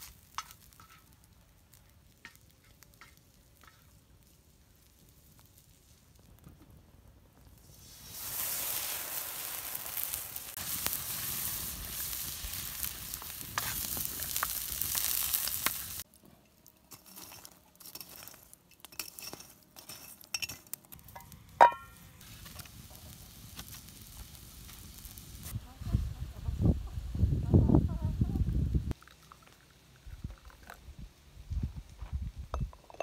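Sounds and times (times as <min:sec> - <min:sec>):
food sizzling in hot oil: 0:00.0 - 0:06.2, 0:07.6 - 0:16.1, 0:21.1 - 0:25.6.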